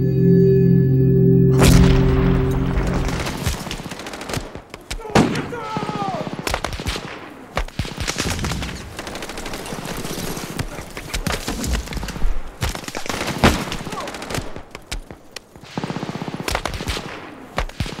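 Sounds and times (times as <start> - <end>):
rifle shots: 2.6 - 10.4, 15.6 - 18.0
machine-gun bursts: 3.3 - 4.6, 7.8 - 10.6.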